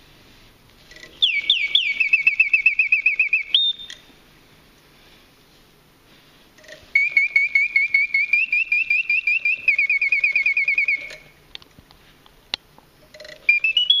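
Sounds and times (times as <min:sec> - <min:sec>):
mechanical bird whistling chirps: 0:00.9 - 0:04.1, 0:06.6 - 0:11.4, 0:13.2 - 0:14.0.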